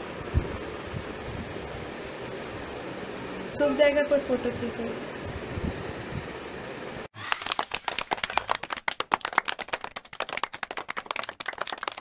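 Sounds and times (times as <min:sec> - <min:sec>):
hands clapping: 0:07.2 - 0:12.0.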